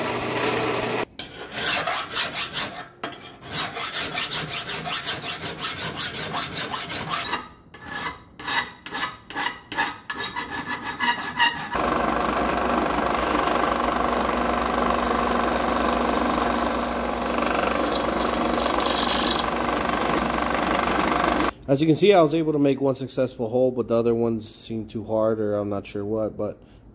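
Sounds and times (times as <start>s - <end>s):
drill press running: 0.0s - 1.1s, 11.8s - 21.5s
file rasping on metal: 1.2s - 11.8s, 17.5s - 19.5s.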